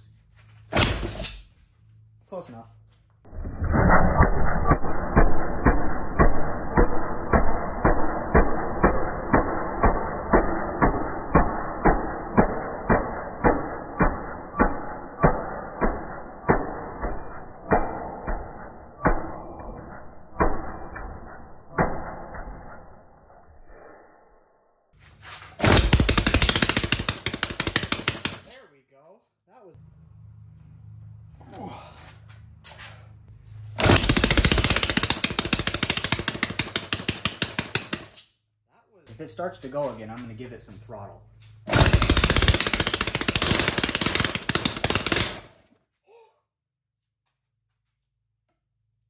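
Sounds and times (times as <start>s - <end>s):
small engine firing pops: 3.4s - 23.0s, 25.6s - 28.6s, 33.8s - 38.2s, 41.7s - 45.7s
single-cylinder engine firing bangs: 33.8s - 36.8s, 41.7s - 45.6s.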